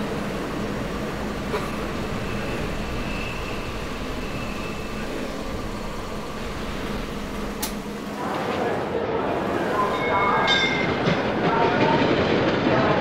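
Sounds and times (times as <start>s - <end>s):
faint high whine: 0.0s - 8.8s, 9.5s - 11.1s
train carriage rumble and rattle: 0.0s - 13.0s.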